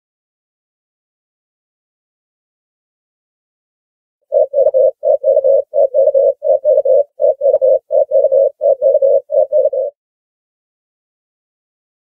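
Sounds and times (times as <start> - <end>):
dove cooing: 4.3 - 10.0.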